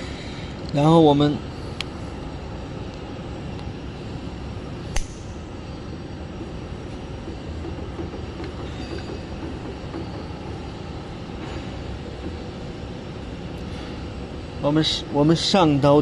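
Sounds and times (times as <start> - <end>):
factory machinery humming: 0.0 - 16.0
sharp click: 4.9 - 5.3.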